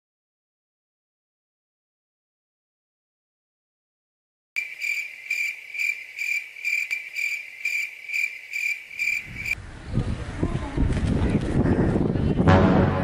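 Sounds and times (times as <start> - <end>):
cricket chirping: 4.6 - 9.6.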